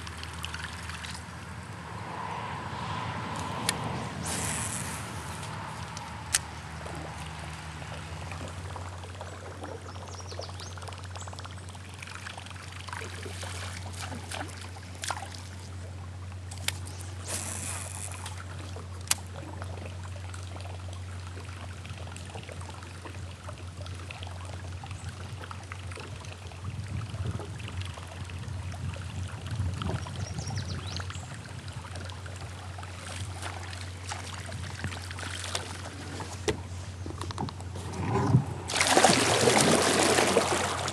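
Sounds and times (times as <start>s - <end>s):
water trickling and dripping: 0.0s - 1.4s, 5.4s - 36.0s
steady low hum: 31.3s - 40.9s.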